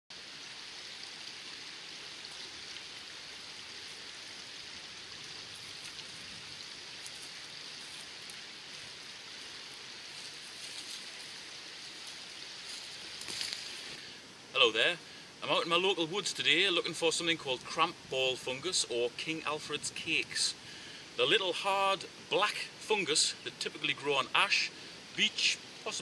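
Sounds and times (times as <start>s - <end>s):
river rushing: 0.2s - 26.0s
footsteps in dry leaves: 5.2s - 14.1s.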